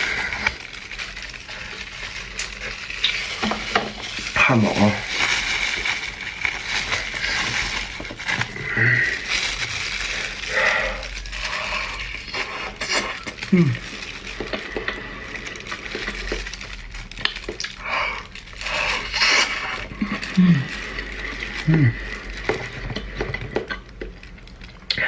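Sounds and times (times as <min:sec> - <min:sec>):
paper box rustling: 0:00.0 - 0:10.5
plastic crinkling: 0:00.0 - 0:25.0.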